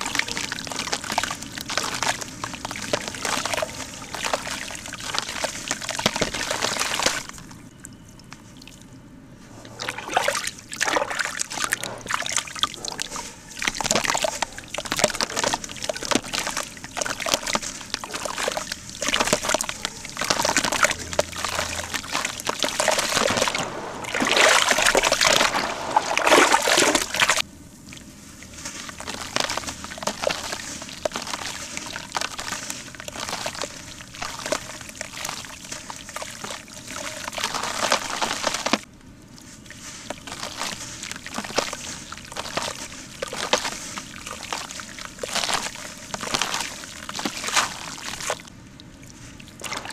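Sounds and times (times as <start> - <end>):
crumbs pattering into water: 0.0 - 7.6, 9.8 - 49.9
cement lumps crumbling: 13.7 - 27.4.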